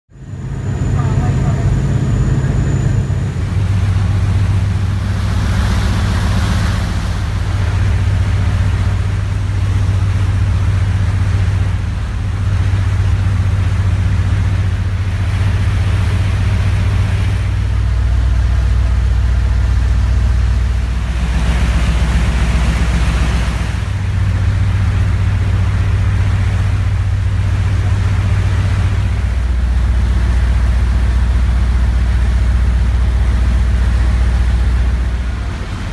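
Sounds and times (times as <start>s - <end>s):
ferry engines droning: 0.1s - 35.9s
rushing hiss of water and wind: 3.3s - 35.9s.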